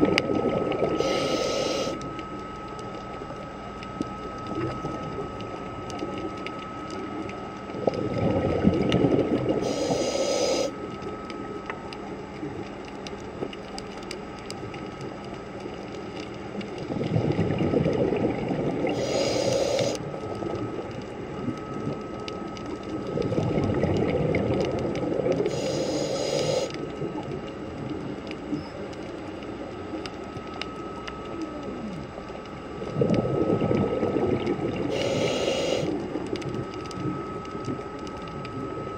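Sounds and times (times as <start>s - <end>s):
regulator hiss: 0.9s - 2.1s, 9.6s - 10.8s, 18.9s - 20.0s, 25.4s - 26.8s, 34.8s - 36.0s
diver exhaling bubbles underwater: 7.8s - 10.7s, 16.9s - 20.0s, 23.1s - 26.7s, 32.9s - 36.2s.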